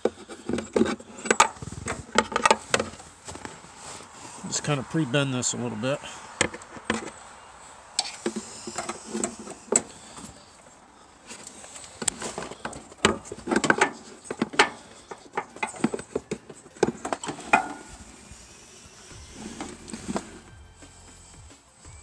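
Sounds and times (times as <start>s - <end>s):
tools clicking and tapping on metal: 0.0s - 2.9s, 12.0s - 17.9s.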